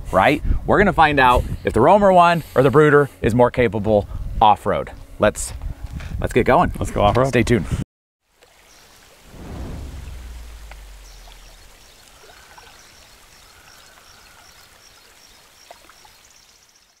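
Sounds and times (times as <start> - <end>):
rushing creek water: 8.3 - 17.0
deep boom: 9.3 - 11.8
birds chirping: 9.6 - 17.0.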